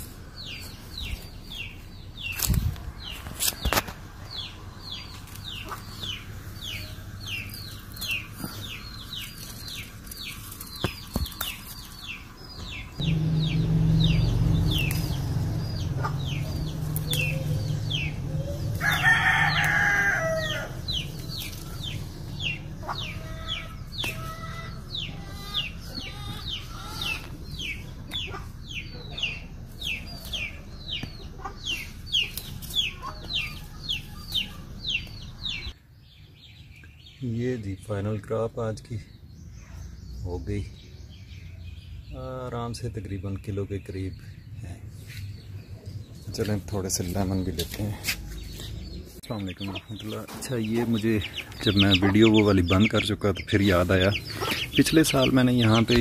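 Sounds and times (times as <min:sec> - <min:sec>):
chicks peeping: 0:00.3 - 0:56.0
hens clucking: 0:03.8 - 0:35.7, 0:45.8 - 0:56.0
low rumble: 0:12.3 - 0:18.9
rooster crowing: 0:17.2 - 0:20.9.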